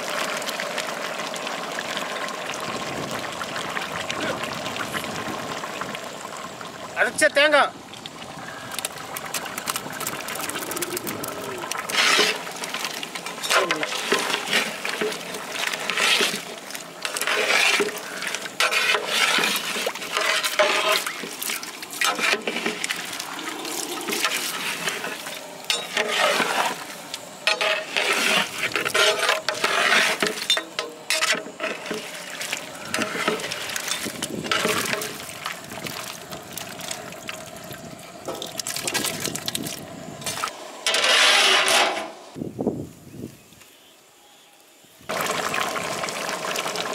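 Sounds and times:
liquid sloshing in a pot: 7.9 - 41.1.

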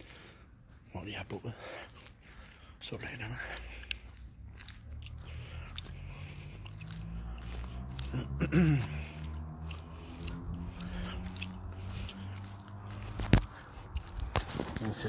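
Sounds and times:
footsteps: 0.0 - 15.0
steady low rumble: 0.0 - 15.0.

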